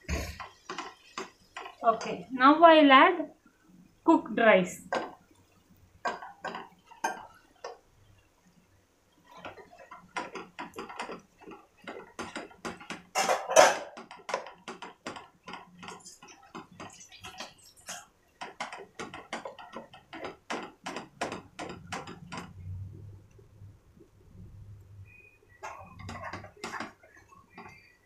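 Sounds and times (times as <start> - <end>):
spatula scraping a pan: 25.6 - 28.0.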